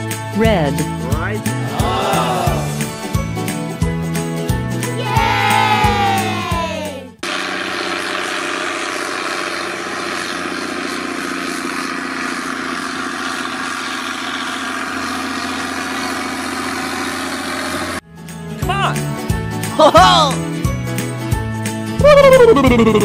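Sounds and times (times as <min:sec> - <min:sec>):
tractor diesel engine running: 0:06.0 - 0:18.3.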